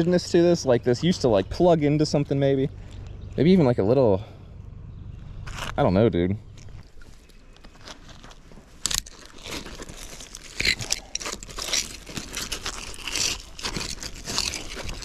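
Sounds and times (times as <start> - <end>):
magnet scraping over concrete: 5.4 - 5.9, 7.6 - 15.0.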